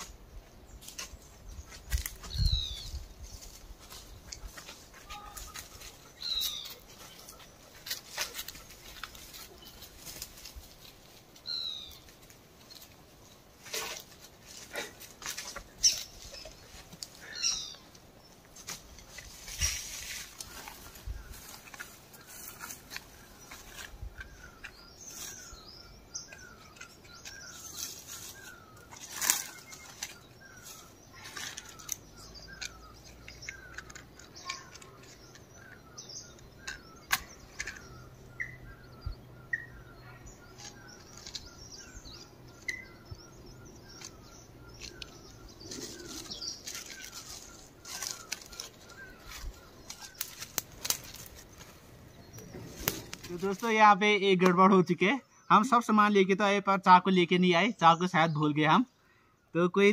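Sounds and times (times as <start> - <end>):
rustling: 0.8 - 35.8, 43.9 - 53.8.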